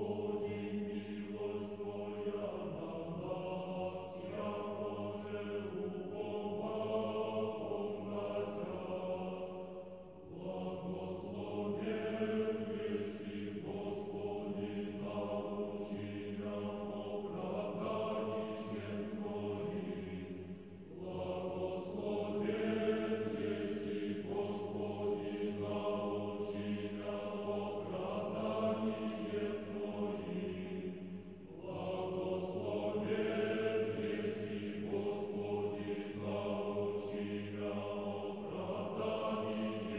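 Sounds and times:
choir singing liturgical chant: 0:00.0 - 0:39.9.

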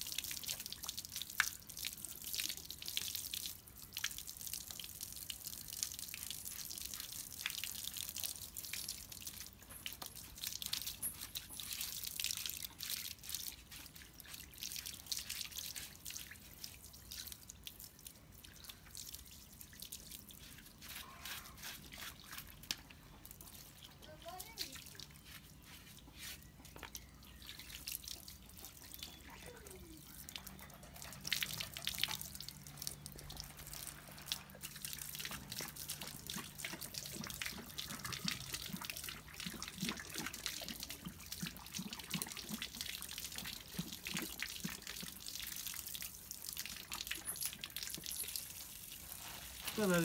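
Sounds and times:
running water splashing: 0:00.0 - 0:50.0.

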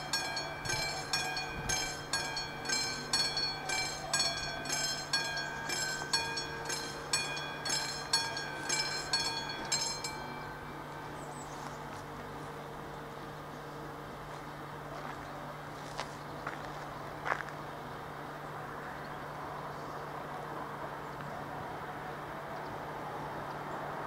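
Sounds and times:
level crossing warning bell: 0:00.0 - 0:12.9.

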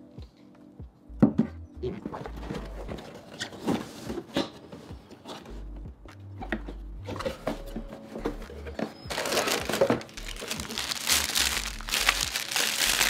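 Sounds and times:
packaging rustling: 0:07.2 - 0:13.0.

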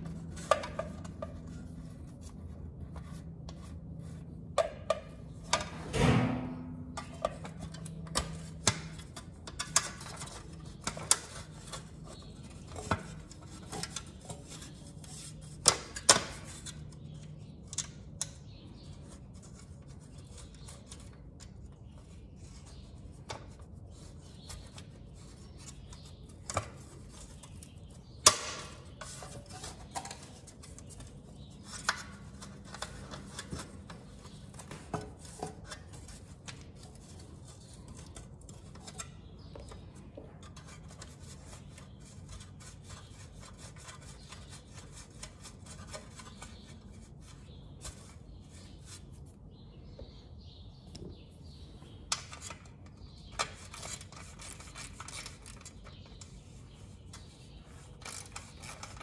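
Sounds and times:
metallic clicks and scrapes: 0:00.0 - 0:49.1, 0:52.0 - 0:59.0
sharp knocks on metal: 0:05.8 - 0:07.2.

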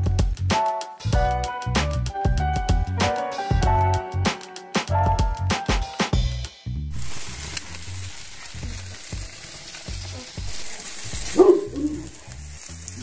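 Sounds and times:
meat sizzling over charcoal: 0:06.9 - 0:13.0.

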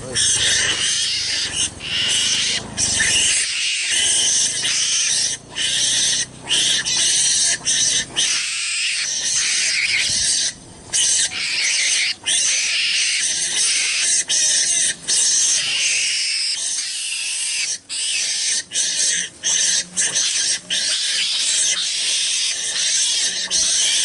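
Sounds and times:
harsh raspy animal calls: 0:00.0 - 0:24.0.

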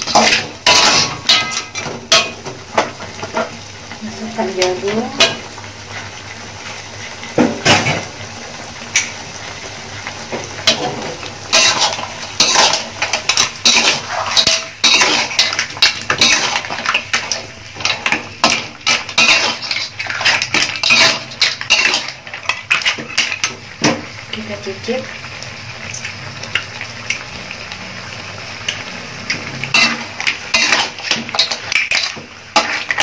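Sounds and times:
metal spatula scraping a wok: 0:00.0 - 0:03.5, 0:10.6 - 0:23.6, 0:29.3 - 0:33.0.

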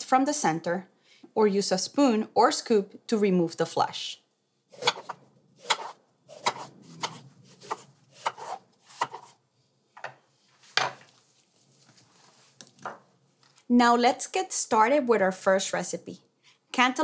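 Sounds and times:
knife cutting on wooden board: 0:04.8 - 0:09.4.

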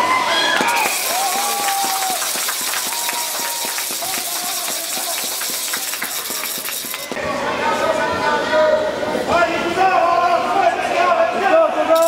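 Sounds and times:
hockey sticks and puck clacking: 0:00.6 - 0:07.2.

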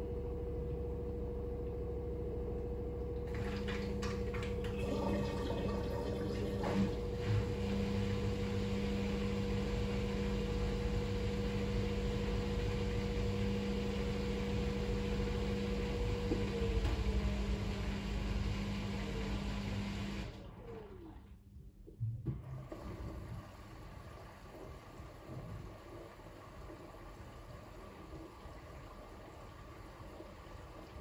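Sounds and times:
washing machine motor whine: 0:00.0 - 0:31.0.

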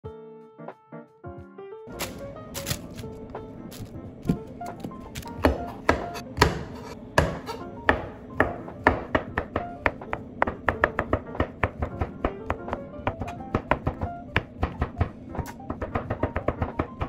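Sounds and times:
background music: 0:00.0 - 0:17.0
knife slicing mushrooms on a board: 0:05.1 - 0:16.9.

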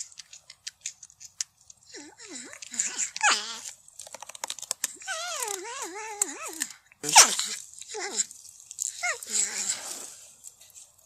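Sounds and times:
porcupine clicks: 0:00.0 - 0:01.8, 0:03.6 - 0:06.8.

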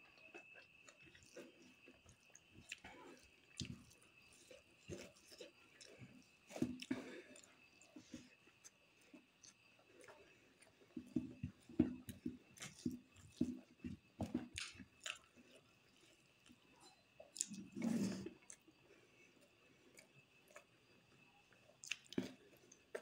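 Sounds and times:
close chewing with wet smacks: 0:00.0 - 0:16.6, 0:17.2 - 0:18.8, 0:21.5 - 0:23.0.

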